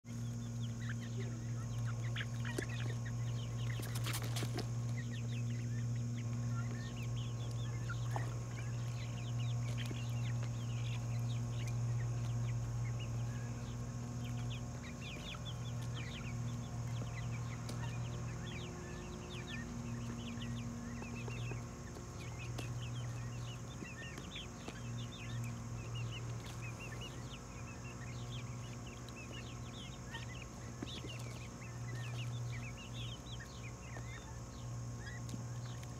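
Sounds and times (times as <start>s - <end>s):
chickens clucking and cheeping: 0.0s - 35.9s
steady low hum: 0.0s - 35.9s.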